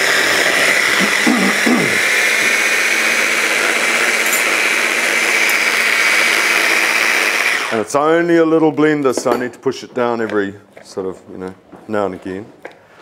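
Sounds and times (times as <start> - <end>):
blender motor whining: 0.0 - 7.9.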